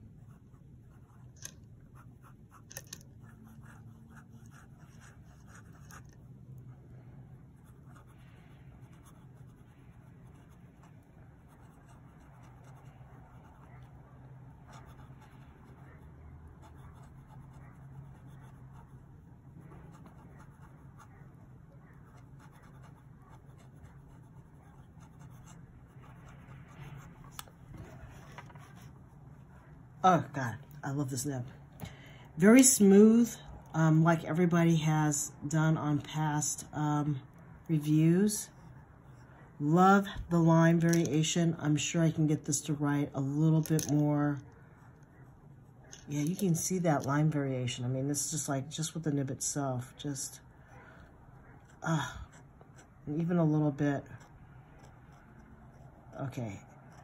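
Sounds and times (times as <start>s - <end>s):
pen scratching on paper: 0.0s - 6.8s, 7.4s - 30.3s, 50.5s - 57.0s.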